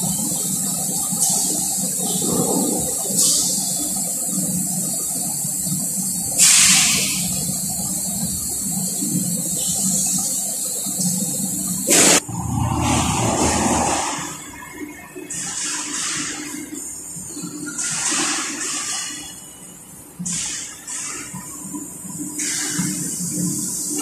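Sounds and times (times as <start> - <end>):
coolant spray hissing: 0.0 - 14.5, 22.0 - 24.0.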